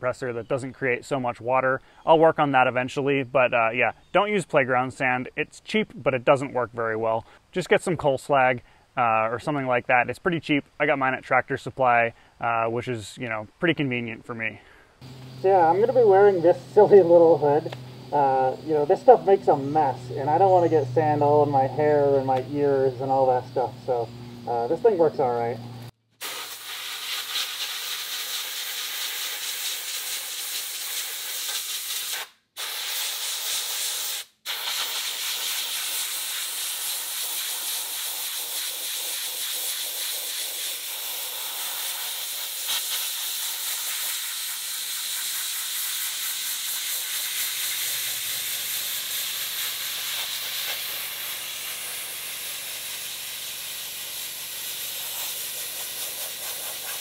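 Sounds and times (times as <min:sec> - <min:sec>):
low steady hum: 0:14.4 - 0:25.9
abrasive blaster hissing: 0:15.0 - 0:25.6, 0:26.2 - 0:57.0.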